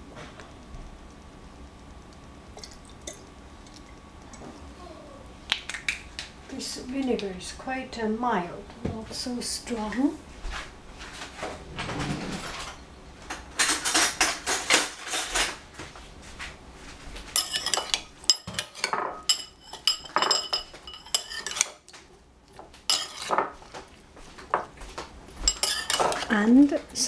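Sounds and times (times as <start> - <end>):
metal spoons clinking in a bowl: 17.4 - 21.8, 22.9 - 23.6, 25.5 - 26.5.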